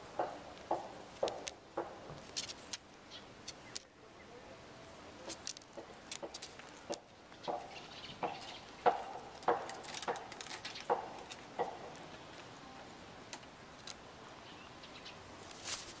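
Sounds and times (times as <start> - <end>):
parrots knocking on wood: 0.2 - 2.3, 5.6 - 12.0.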